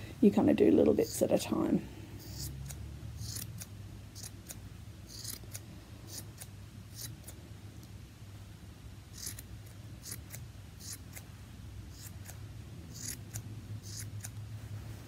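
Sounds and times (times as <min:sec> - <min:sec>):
scissors snipping yarn: 0:02.2 - 0:07.4, 0:09.1 - 0:11.3, 0:11.9 - 0:14.4.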